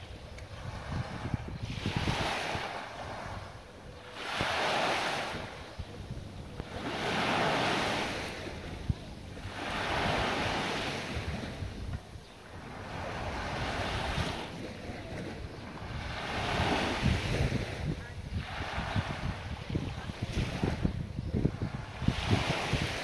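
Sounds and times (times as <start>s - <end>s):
small waves washing ashore: 0.0s - 23.0s
wind rumbling on microphone: 0.0s - 23.0s.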